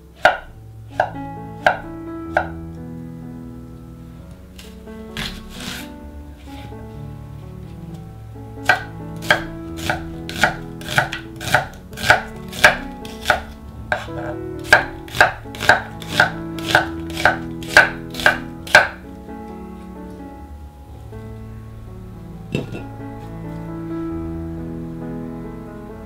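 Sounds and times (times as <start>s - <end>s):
knife chopping onion on wooden board: 0.2s - 2.6s, 5.2s - 5.8s, 8.6s - 19.0s.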